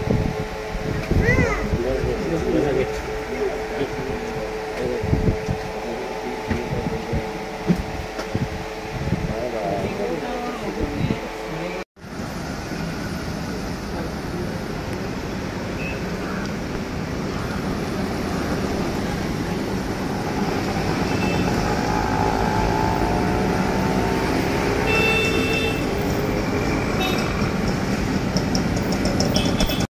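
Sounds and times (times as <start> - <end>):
bus passing close: 11.4 - 29.9
cars passing: 11.4 - 29.9.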